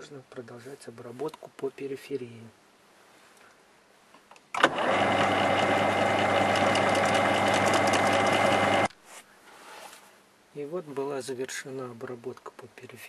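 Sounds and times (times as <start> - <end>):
metal lathe humming: 4.7 - 8.9.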